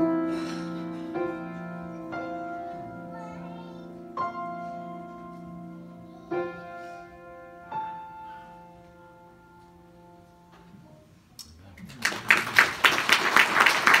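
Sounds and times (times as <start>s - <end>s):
applause: 11.8s - 14.0s.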